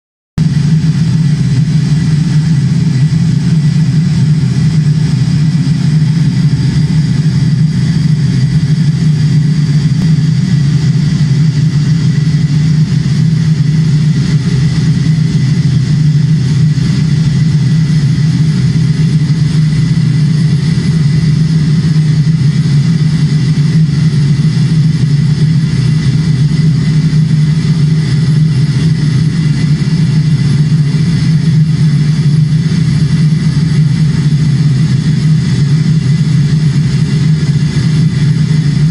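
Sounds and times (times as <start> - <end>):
low rumbling drone: 0.4 - 38.9.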